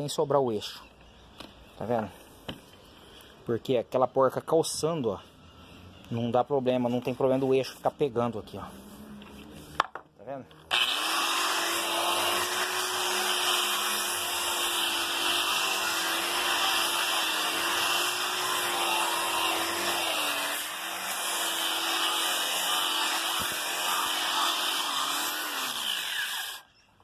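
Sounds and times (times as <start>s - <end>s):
angle grinder sanding wood: 10.7s - 26.7s.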